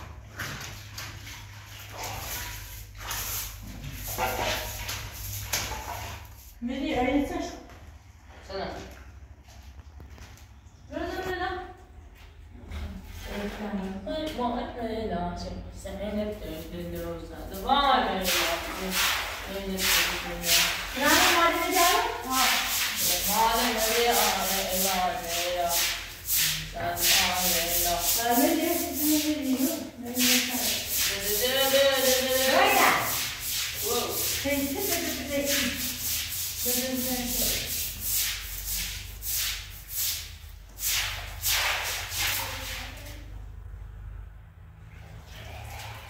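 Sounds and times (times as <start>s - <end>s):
rubbing strokes: 1.2s - 6.6s, 18.2s - 43.0s
person talking: 13.4s - 33.2s, 33.8s - 36.0s.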